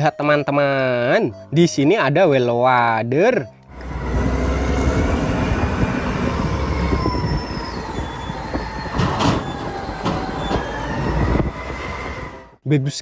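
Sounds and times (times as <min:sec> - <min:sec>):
high wavering whine: 0:03.7 - 0:12.5
diesel engine rumbling under load: 0:03.7 - 0:12.6.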